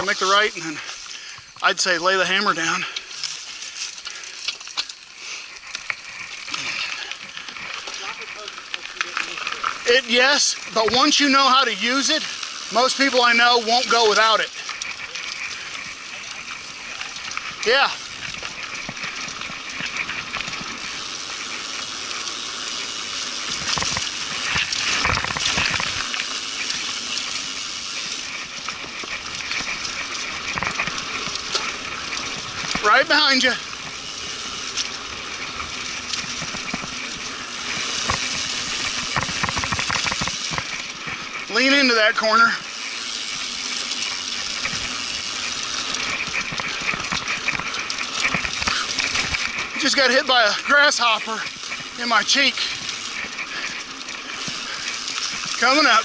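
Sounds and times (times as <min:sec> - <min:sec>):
bike jolts and rattles: 0:00.0 - 0:56.0
bike tyres rolling over dirt: 0:00.0 - 0:56.0.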